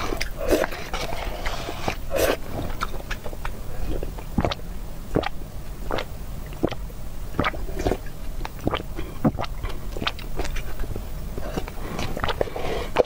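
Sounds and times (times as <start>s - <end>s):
mouth clicks: 0.0s - 13.0s
wet gulping swallows: 3.9s - 6.8s, 7.4s - 13.0s.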